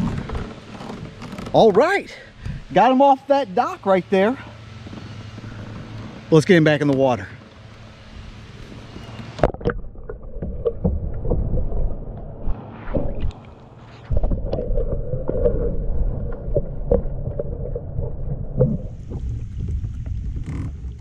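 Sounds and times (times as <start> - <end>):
underwater rumble of moving water: 0.0 - 2.7, 4.6 - 21.0
wind and water hiss: 0.0 - 9.6
underwater clicks and knocks: 9.1 - 12.3.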